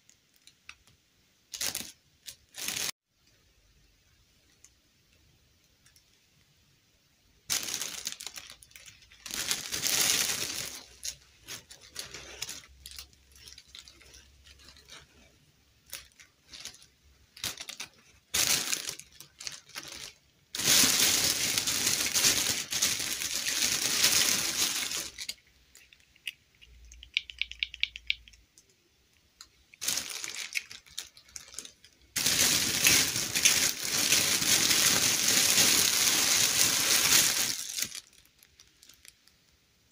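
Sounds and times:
plastic bag crinkling: 1.5 - 3.0, 7.5 - 26.3, 29.7 - 39.4.

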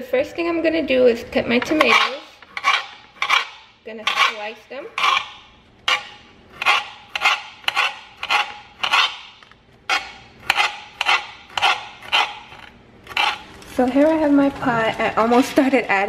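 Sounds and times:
knife slicing tomatoes: 1.7 - 13.5.

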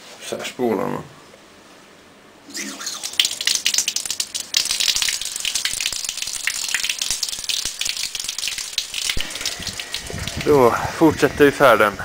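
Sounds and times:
water gushing and splashing: 2.5 - 10.7.

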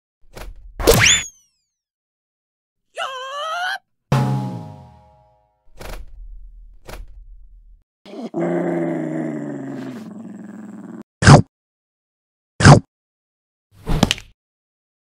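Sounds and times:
dog growling: 8.1 - 11.0.

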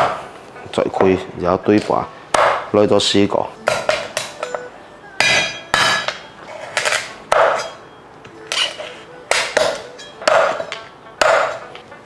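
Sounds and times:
cleaver chopping on wooden board: 9.3 - 11.6.

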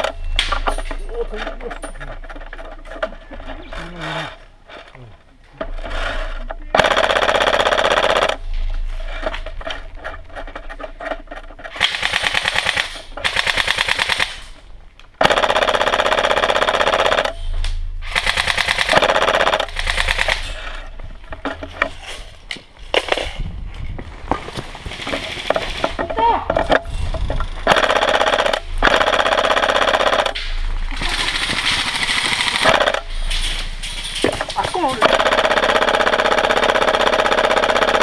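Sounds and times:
electric toy gun firing bursts: 6.8 - 8.4, 11.8 - 14.4, 18.0 - 20.4, 27.6 - 30.4, 31.0 - 33.1, 35.0 - 38.0.

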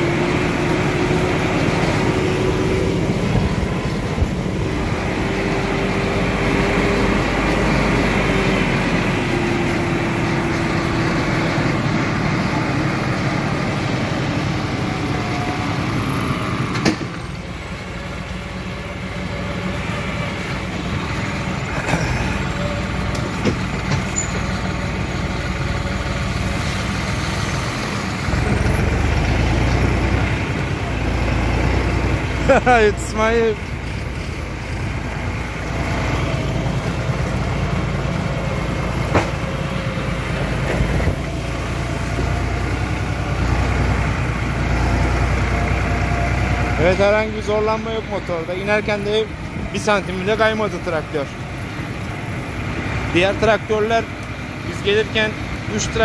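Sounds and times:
passing tractor engine rumbling: 0.0 - 56.0
tractor diesel engine running: 0.0 - 56.0.

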